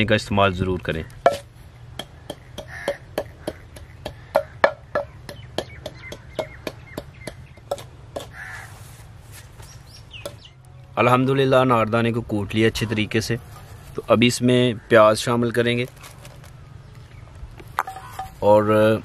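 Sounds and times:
pestle pounding in mortar: 1.2s - 8.4s
bird calling: 2.0s - 9.0s, 16.5s - 18.4s.

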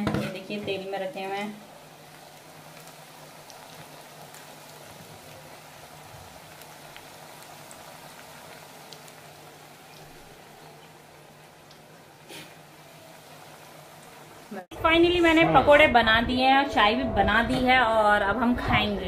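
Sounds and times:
oil crackles and pops: 0.0s - 14.6s
food deep-frying in oil: 0.0s - 15.0s.

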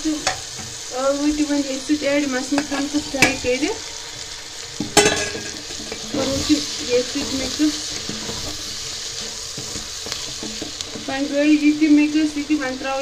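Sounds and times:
vegetables sizzling in a pot: 0.0s - 13.0s
wooden spoon scraping: 2.3s - 11.5s.

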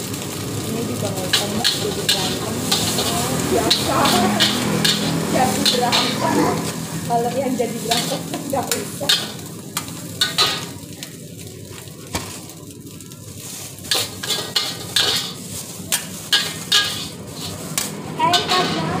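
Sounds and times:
frying sizzle: 0.0s - 19.0s
metal ladle scraping wok: 1.3s - 10.8s, 13.4s - 19.0s.

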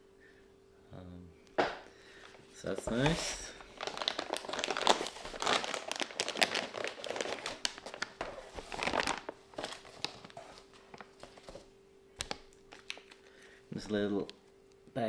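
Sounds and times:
plastic packaging crinkling: 2.2s - 13.5s.

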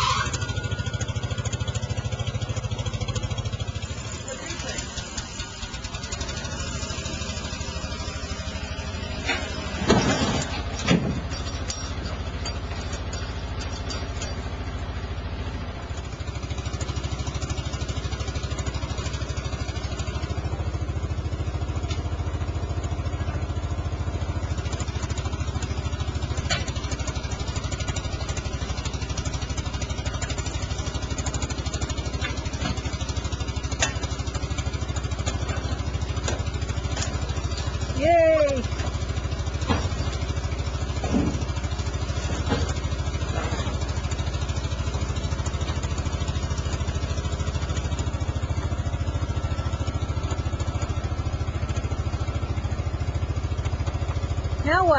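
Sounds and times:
truck engine idling: 0.0s - 54.9s.

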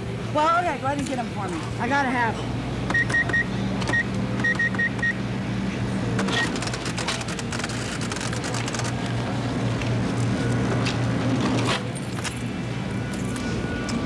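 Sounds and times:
low electrical hum: 0.0s - 14.0s
keypad beeps: 2.9s - 5.2s.

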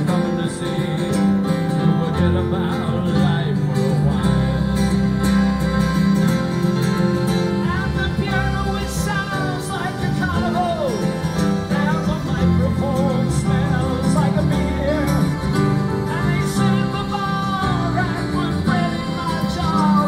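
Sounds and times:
electric keyboard: 0.0s - 20.0s
guitar: 0.0s - 20.0s
person singing: 7.5s - 20.0s.

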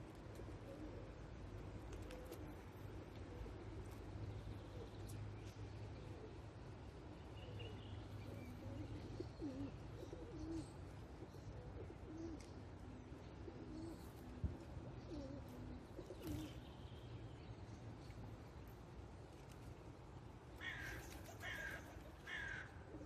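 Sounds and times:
pigeon cooing: 0.2s - 5.0s, 8.4s - 16.6s.

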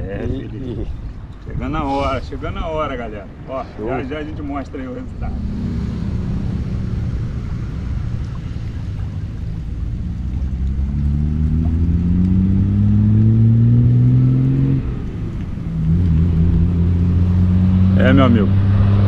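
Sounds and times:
motor engine humming: 4.9s - 13.7s.

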